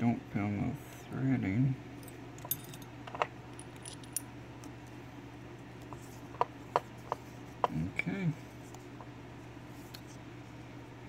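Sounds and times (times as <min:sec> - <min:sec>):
low steady hum: 0:00.0 - 0:11.0
lock cylinder and key clicking: 0:02.4 - 0:04.3.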